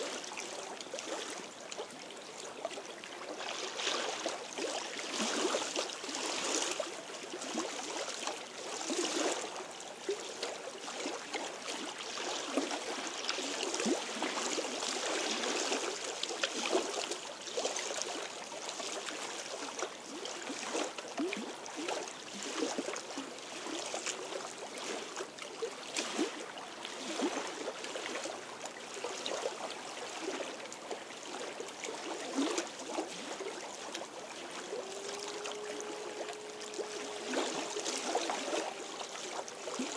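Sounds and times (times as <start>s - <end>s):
small waves lapping against stones: 0.0s - 39.9s.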